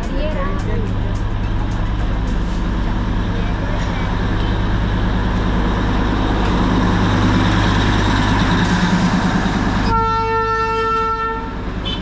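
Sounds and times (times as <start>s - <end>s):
engine rumble in traffic: 0.0s - 12.0s
car horn: 9.8s - 12.0s.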